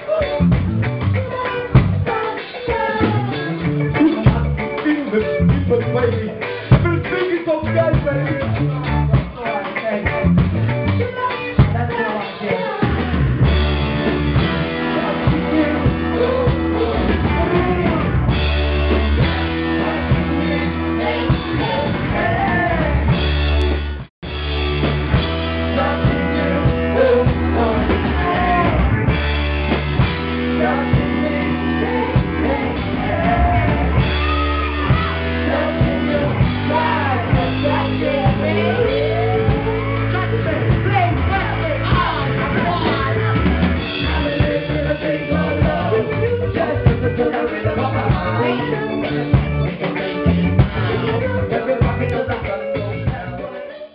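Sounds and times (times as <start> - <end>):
drum kit: 0.0 - 53.5
live band playing: 0.0 - 53.9
people singing into microphones: 1.2 - 6.0, 14.3 - 23.2, 25.5 - 50.1, 50.7 - 53.9.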